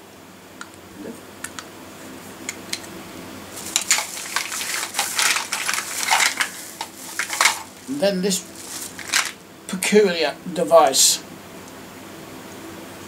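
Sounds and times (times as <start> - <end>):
electrical plugs clattering together: 3.6 - 7.8, 8.8 - 9.4.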